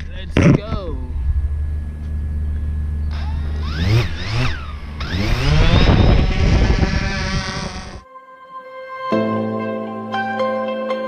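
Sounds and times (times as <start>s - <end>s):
drone rotors whining: 0.0s - 8.0s.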